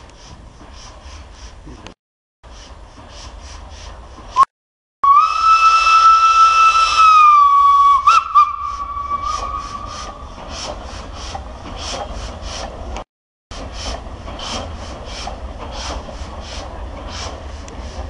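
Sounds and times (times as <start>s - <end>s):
steam locomotive whistle: 4.4s - 10.1s
steam hissing: 5.5s - 12.9s, 13.6s - 18.0s.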